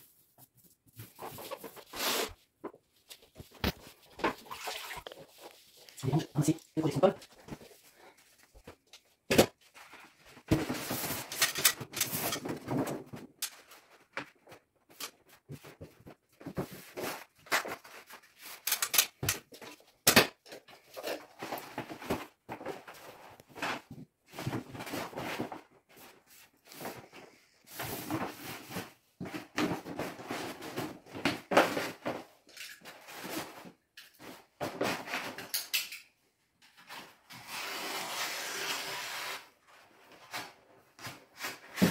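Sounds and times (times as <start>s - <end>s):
wallpaper rustling and crinkling: 0.0s - 35.5s, 36.6s - 41.9s.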